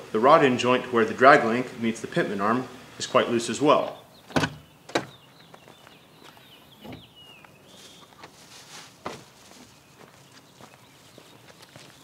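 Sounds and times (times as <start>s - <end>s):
faint bird chirping: 3.8s - 12.0s
rustling of things moved: 6.8s - 12.0s.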